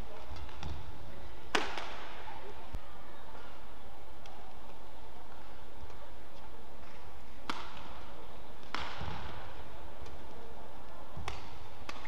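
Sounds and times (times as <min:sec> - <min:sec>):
rackets striking shuttlecock: 0:01.5 - 0:02.0, 0:06.8 - 0:10.4, 0:11.2 - 0:12.0.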